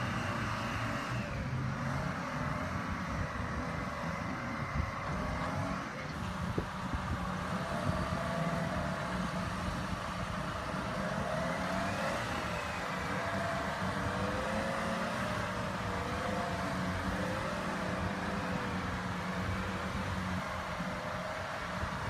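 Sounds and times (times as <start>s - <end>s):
faint wavering whine: 0.0s - 22.0s
heavy vehicle engine running: 0.0s - 22.0s.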